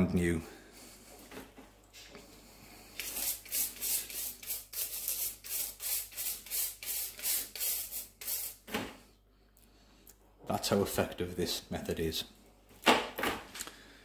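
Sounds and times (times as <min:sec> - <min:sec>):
brush scrubbing wet chain: 0:03.0 - 0:08.6.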